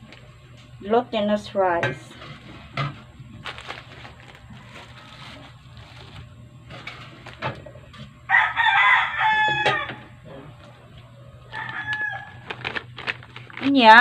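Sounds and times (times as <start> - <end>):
rooster crowing: 4.3 - 5.5, 8.3 - 10.3, 11.4 - 12.7.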